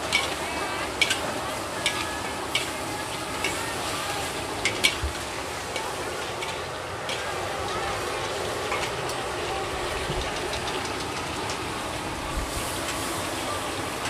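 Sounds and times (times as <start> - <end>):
metal spatula scraping wok: 0.0 - 9.1
food sizzling: 0.0 - 14.0.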